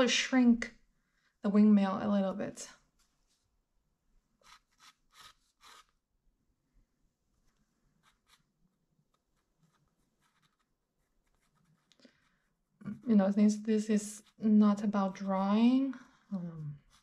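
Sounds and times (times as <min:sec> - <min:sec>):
pencil strokes on paper: 0:04.4 - 0:06.0, 0:07.8 - 0:17.0.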